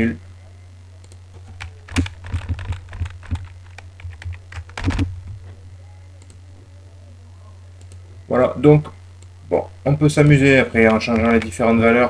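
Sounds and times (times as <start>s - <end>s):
steady low hum: 0.0s - 12.0s
keyboard keystrokes: 1.5s - 5.1s.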